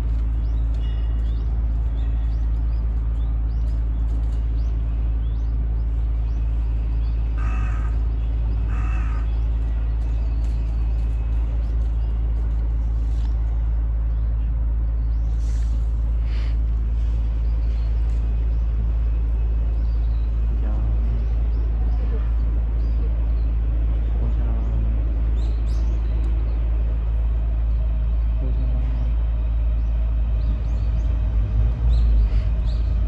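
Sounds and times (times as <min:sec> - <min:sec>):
steady low rumble: 0:00.0 - 0:33.0
crow cawing: 0:07.4 - 0:08.1, 0:08.7 - 0:09.3.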